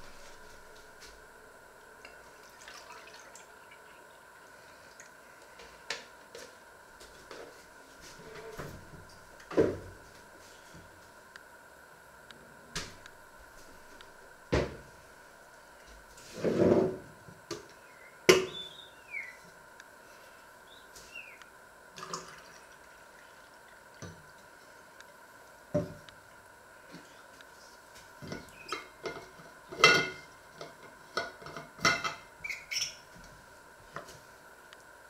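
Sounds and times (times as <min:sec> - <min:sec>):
faint steady hum: 0:00.0 - 0:35.0.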